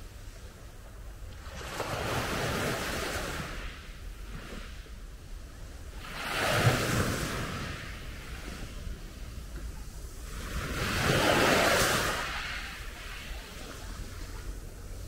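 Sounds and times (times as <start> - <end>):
small waves breaking on beach: 0.0 - 15.0.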